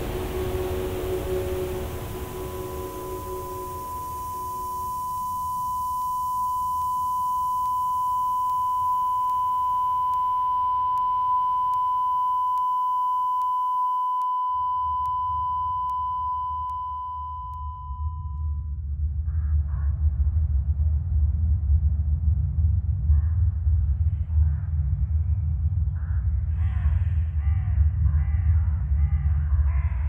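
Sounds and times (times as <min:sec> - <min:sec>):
low rumble: 0:00.0 - 0:12.7, 0:14.8 - 0:30.0
high-pitched electronic tone: 0:00.0 - 0:18.4.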